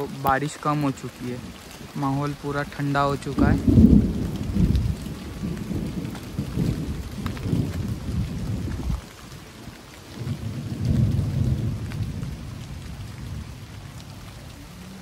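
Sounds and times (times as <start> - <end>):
heavy rain falling: 0.0 - 15.0
deep rumble: 3.3 - 9.0.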